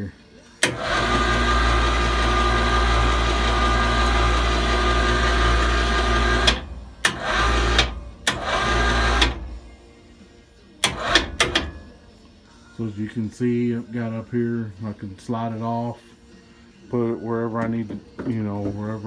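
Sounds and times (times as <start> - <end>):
electric hoist motor running: 0.6 - 9.7, 10.8 - 11.8.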